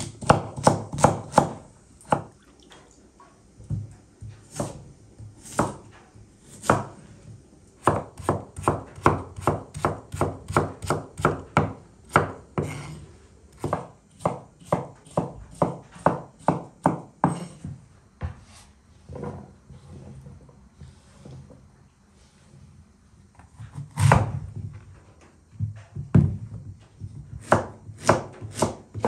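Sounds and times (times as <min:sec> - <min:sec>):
knife chopping on wooden board: 0:00.0 - 0:02.3, 0:04.4 - 0:05.9, 0:06.5 - 0:07.0, 0:07.8 - 0:17.6, 0:23.5 - 0:24.3, 0:27.3 - 0:29.0.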